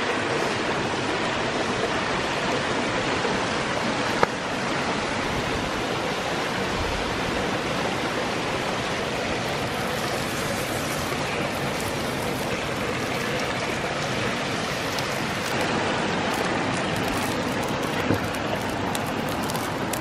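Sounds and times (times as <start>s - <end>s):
running water rushing: 0.0s - 20.0s
fat sizzling on hot stone: 9.3s - 20.0s.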